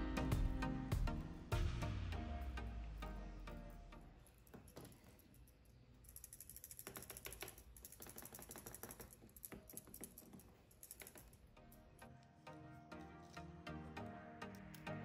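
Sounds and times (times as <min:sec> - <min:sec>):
small parts clicking and rattling: 0:04.2 - 0:12.2, 0:14.4 - 0:15.0.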